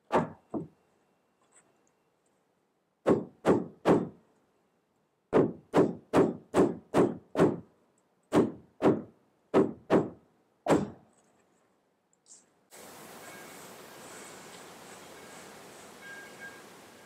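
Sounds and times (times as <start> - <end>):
hammer striking wood: 3.0 - 4.2, 5.3 - 7.6, 8.3 - 11.0.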